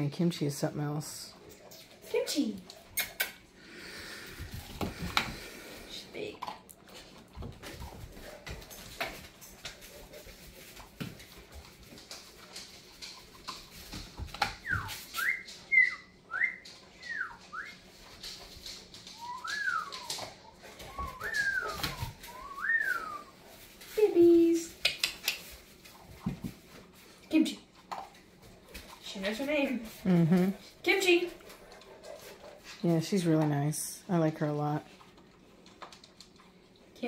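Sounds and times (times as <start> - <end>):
puppy whining: 19.1 - 23.5.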